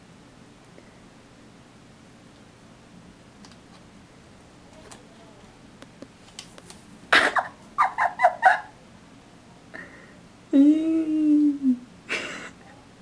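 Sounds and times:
long low vocal sound: 10.5 - 11.9.

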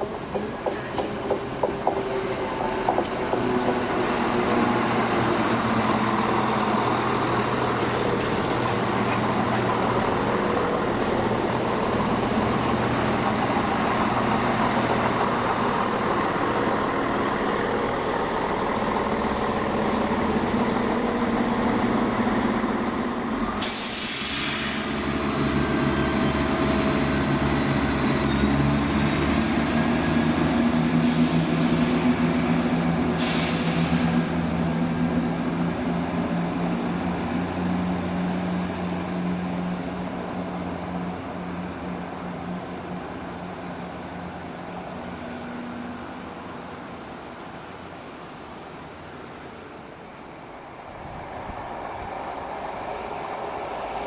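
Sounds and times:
diesel train engines droning: 0.0 - 54.0
brief hiss: 23.5 - 24.9, 33.1 - 34.2.

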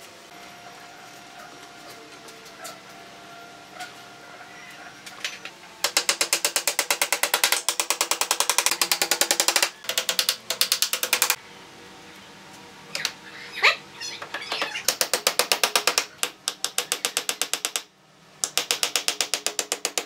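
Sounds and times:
hammer tapping nails into wood: 5.8 - 11.4, 14.9 - 20.0.

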